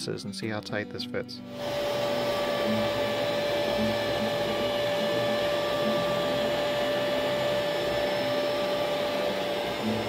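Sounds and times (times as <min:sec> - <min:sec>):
router bit cutting wood: 0:01.5 - 0:10.0
router spindle motor whine: 0:01.5 - 0:10.0.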